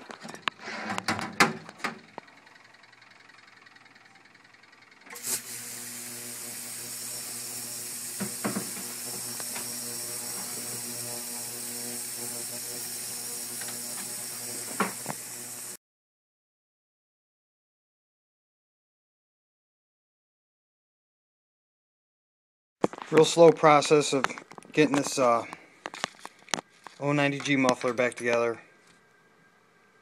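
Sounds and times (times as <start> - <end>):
ultrasonic cleaner buzzing hum: 5.1 - 15.8
high hiss from cleaning bath: 5.2 - 15.8.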